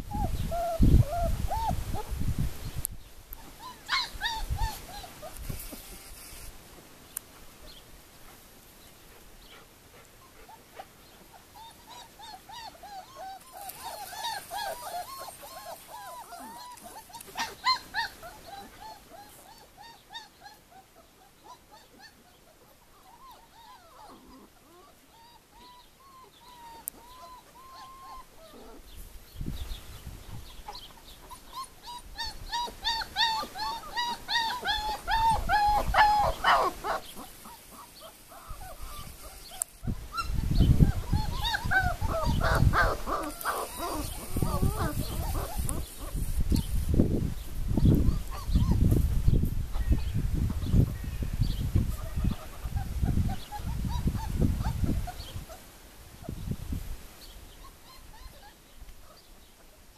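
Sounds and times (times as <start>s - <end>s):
dogs whimpering and whining: 0.0s - 2.0s, 3.4s - 5.4s, 11.3s - 29.0s, 30.5s - 46.3s, 47.8s - 49.0s, 52.0s - 55.6s, 57.5s - 58.6s.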